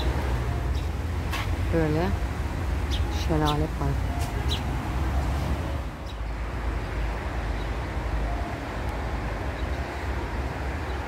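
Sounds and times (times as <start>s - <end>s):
outdoor rushing noise: 4.2s - 8.2s.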